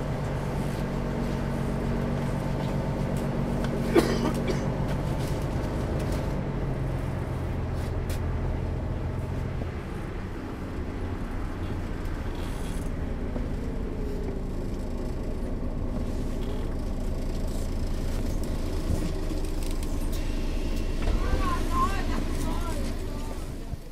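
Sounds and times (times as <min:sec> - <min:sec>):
bus diesel engine idling: 0:00.0 - 0:23.9.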